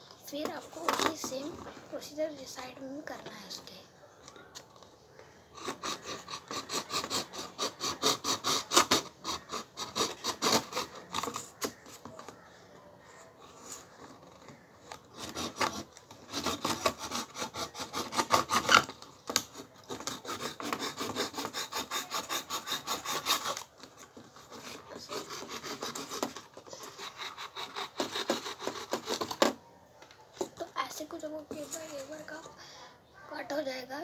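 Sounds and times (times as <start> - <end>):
knife sawing paper cup: 0.3 - 1.6, 5.6 - 12.5, 13.2 - 29.6, 30.5 - 32.6.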